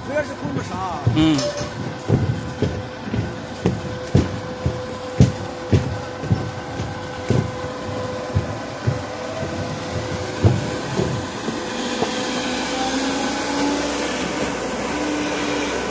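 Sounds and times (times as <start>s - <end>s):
concrete pump mechanical hum: 0.0s - 15.9s
low thumps: 1.0s - 12.2s.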